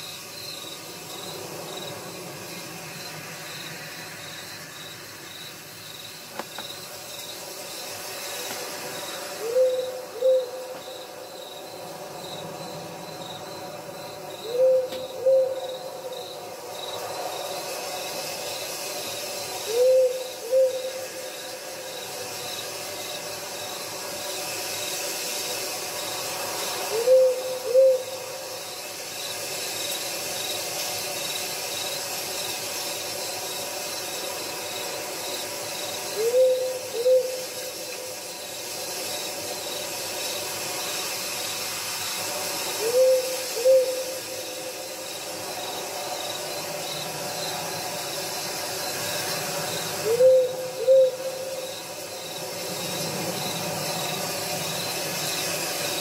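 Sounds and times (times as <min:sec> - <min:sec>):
crickets chirping: 0:00.0 - 0:56.0
owl hooting: 0:09.3 - 0:11.1, 0:14.4 - 0:16.2, 0:19.6 - 0:21.4, 0:26.9 - 0:28.4, 0:36.1 - 0:38.0, 0:42.7 - 0:44.7, 0:50.0 - 0:51.8.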